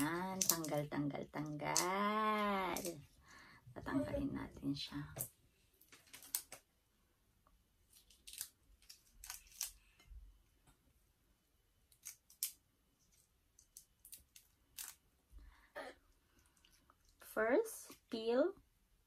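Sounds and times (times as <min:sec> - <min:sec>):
shrimp shells crackling: 0:00.0 - 0:03.0, 0:07.9 - 0:10.0, 0:13.6 - 0:15.0.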